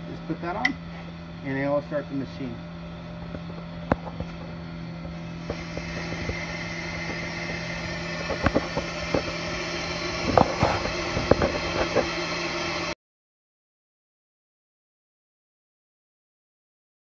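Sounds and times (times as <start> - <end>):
motor hum: 0.0 - 13.0
brake lathe cutting rotor: 3.5 - 13.0.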